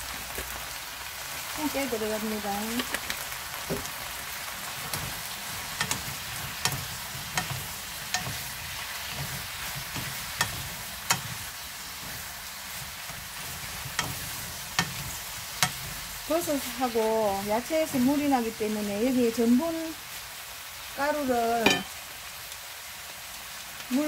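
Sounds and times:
food sizzling in a frying pan: 0.0s - 24.0s
spatulas tapping against pan: 4.9s - 11.4s, 13.1s - 16.0s, 21.6s - 22.0s.

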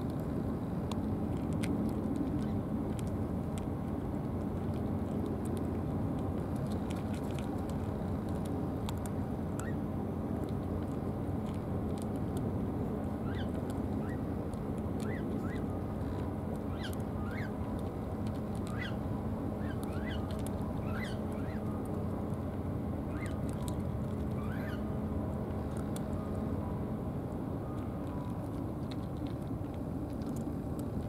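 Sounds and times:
cat crunching dry food: 0.0s - 9.6s, 10.4s - 12.6s, 13.5s - 18.8s, 25.3s - 26.2s, 27.8s - 31.0s
low outdoor rumble: 0.0s - 31.0s.

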